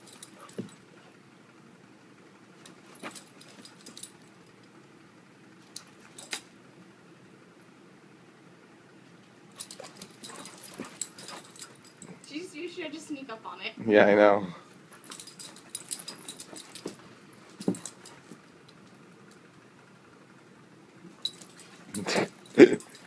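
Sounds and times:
dog collar tags jingling: 0.0s - 0.8s, 2.6s - 4.4s, 5.7s - 6.5s, 9.6s - 12.4s, 14.9s - 18.8s, 21.1s - 23.0s.

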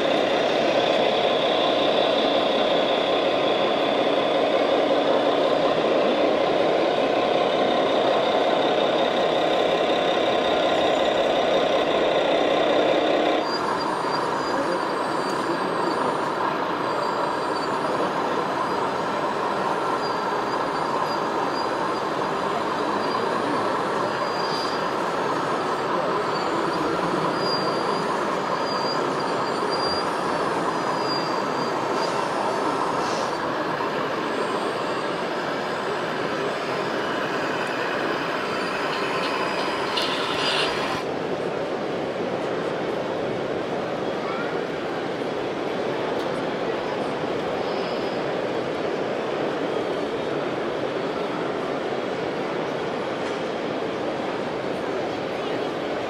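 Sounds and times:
toy truck diesel engine sound: 0.0s - 41.1s.

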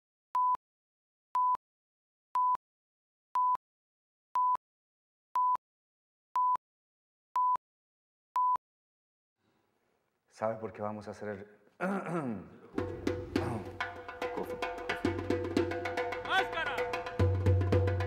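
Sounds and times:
short single-pitched beeps: 7.4s - 7.6s.

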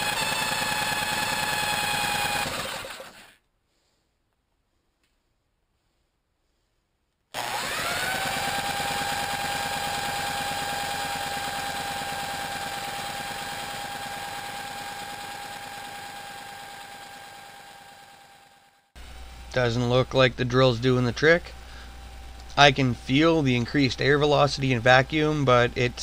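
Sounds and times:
drill spinning engine whine: 0.0s - 3.4s, 7.4s - 19.6s
fast pulsing: 0.0s - 3.4s, 7.4s - 17.7s.

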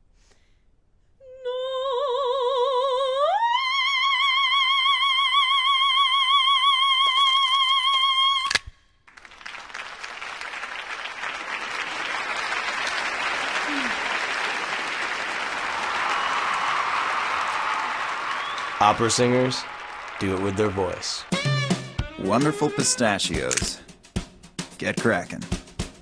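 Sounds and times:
woman singing opera: 1.2s - 8.5s
applause: 9.0s - 21.9s.

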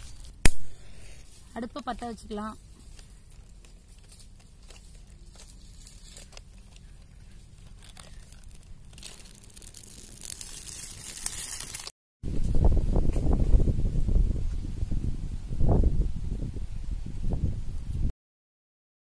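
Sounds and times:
twig fire crackling: 0.0s - 11.9s.

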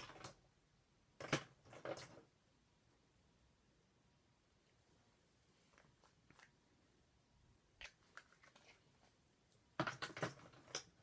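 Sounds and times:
makeup items clicking and clattering: 9.8s - 11.0s.

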